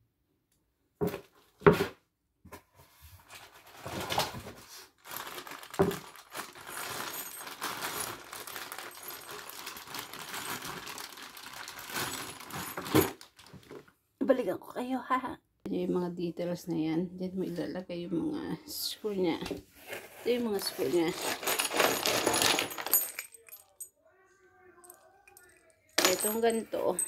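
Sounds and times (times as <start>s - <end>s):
plastic bag crinkling: 4.9s - 13.8s, 20.7s - 23.6s.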